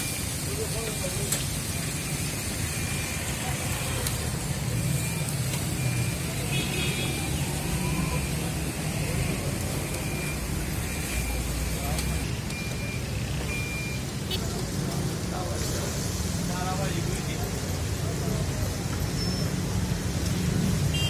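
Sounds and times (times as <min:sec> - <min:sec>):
kebabs sizzling in hot fat: 0:00.0 - 0:21.0.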